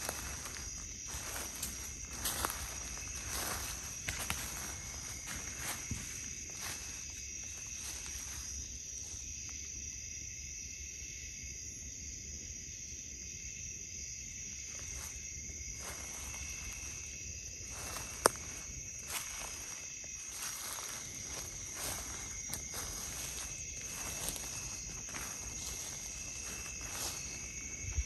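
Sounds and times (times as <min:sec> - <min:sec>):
footsteps in leaf litter: 0:00.0 - 0:08.6, 0:14.7 - 0:28.0
night insects chirring: 0:00.0 - 0:28.0.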